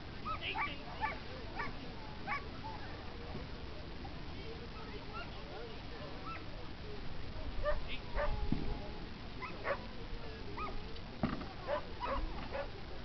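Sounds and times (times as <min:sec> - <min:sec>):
distant dogs barking and yipping: 0:00.2 - 0:02.9, 0:06.2 - 0:06.5, 0:07.6 - 0:08.5, 0:09.4 - 0:09.9, 0:10.5 - 0:10.8, 0:11.6 - 0:12.8.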